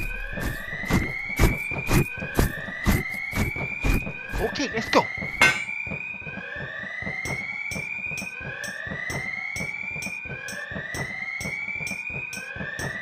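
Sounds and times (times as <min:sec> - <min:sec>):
sharp electronic pulses: 0:00.0 - 0:06.4
alarm siren whooping: 0:00.0 - 0:13.0.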